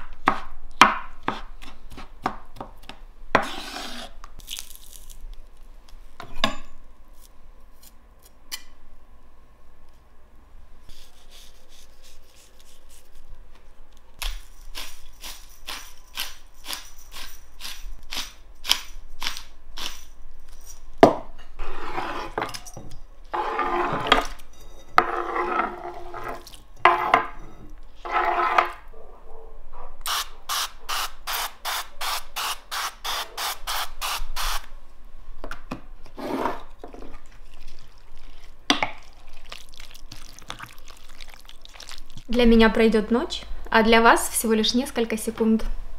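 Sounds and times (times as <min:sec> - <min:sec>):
knife scraping on wooden board: 0:21.6 - 0:22.6, 0:23.3 - 0:28.8.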